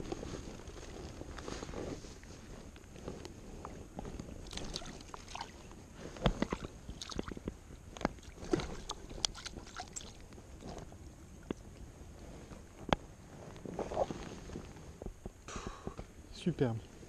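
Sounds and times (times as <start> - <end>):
small water splashes: 4.4 - 5.6, 6.4 - 7.4, 8.2 - 10.2.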